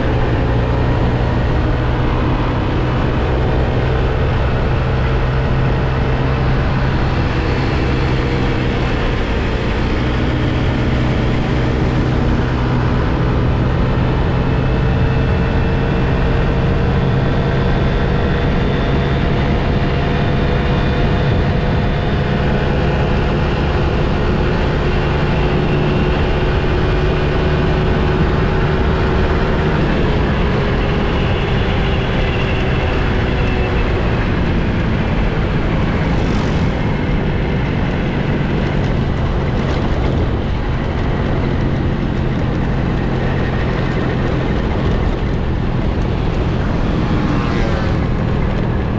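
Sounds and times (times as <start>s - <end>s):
wind rush over microphone: 0.0s - 48.9s
scooter engine running: 19.4s - 48.9s.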